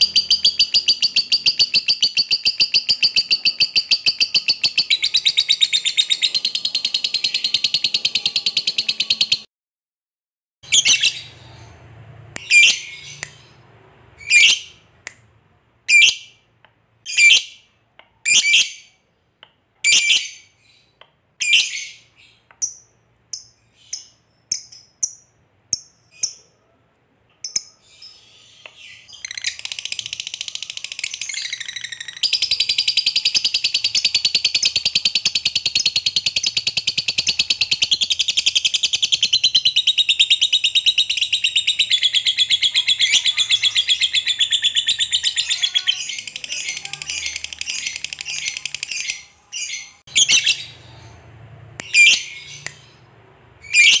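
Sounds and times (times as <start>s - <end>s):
lovebird chirping and trilling: 0.0s - 9.5s, 10.6s - 13.6s, 14.2s - 14.9s, 15.9s - 16.5s, 17.1s - 19.0s, 19.8s - 26.5s, 27.4s - 54.0s.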